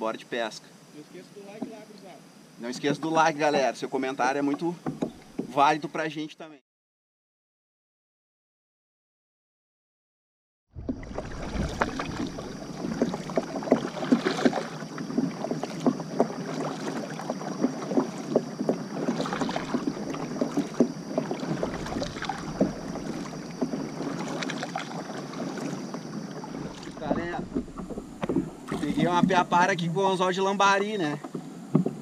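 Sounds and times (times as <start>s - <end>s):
water sloshing along hull: 2.6s - 5.6s, 10.8s - 32.0s
water dripping: 10.8s - 29.5s
paddle strokes splashing water: 10.8s - 32.0s.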